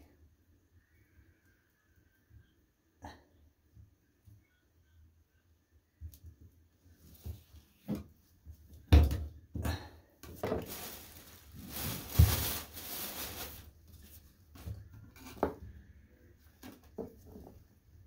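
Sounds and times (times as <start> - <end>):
plastic bag rustling: 10.4 - 14.3.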